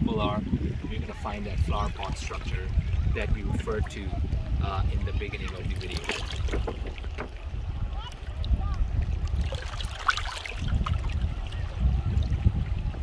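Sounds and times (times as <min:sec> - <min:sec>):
wind buffeting microphone: 0:00.0 - 0:13.0
faint voices: 0:00.8 - 0:10.0
water lapping on pebbles: 0:05.3 - 0:12.5.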